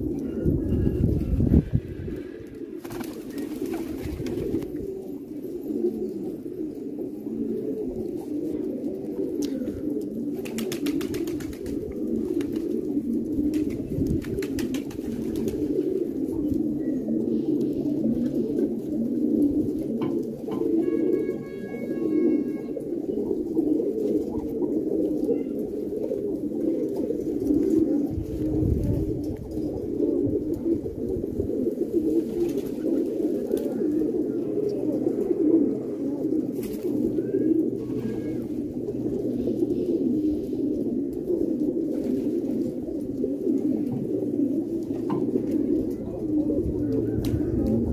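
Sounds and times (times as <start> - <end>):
pigeons cooing: 0.0 - 47.9.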